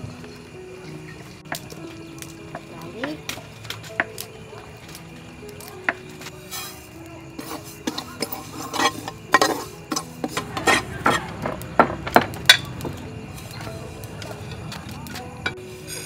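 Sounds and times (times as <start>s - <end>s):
seeds poured into pan: 6.2s - 11.3s
metal spatula scraping pan: 6.5s - 11.4s.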